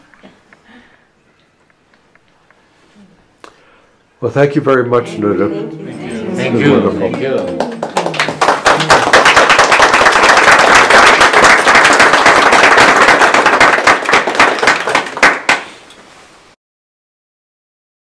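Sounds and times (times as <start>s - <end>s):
audience applauding: 6.1s - 15.8s.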